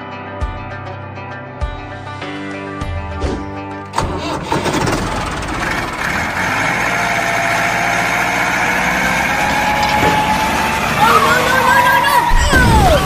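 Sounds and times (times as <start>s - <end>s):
background music: 0.0s - 13.0s
vehicle engine starting and running: 3.2s - 13.0s.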